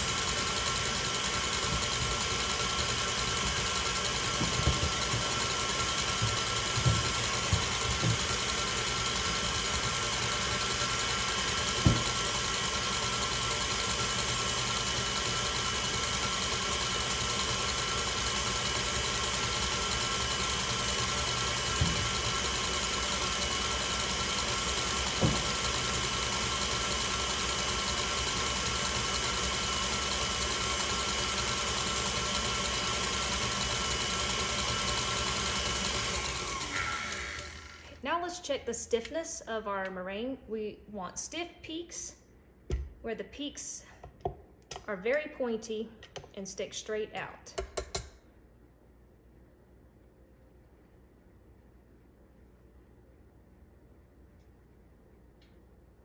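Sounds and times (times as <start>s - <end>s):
electric mixer whining: 0.0s - 38.0s.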